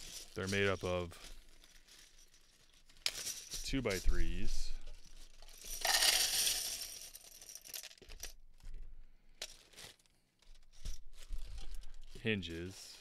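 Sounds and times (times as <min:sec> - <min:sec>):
plastic pieces clattering into cup: 0:05.3 - 0:08.3.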